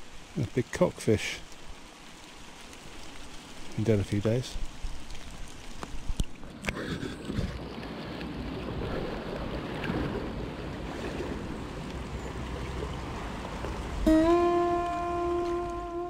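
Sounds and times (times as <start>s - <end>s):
river flowing: 0.0s - 16.0s
wind rumbling on microphone: 3.0s - 15.8s.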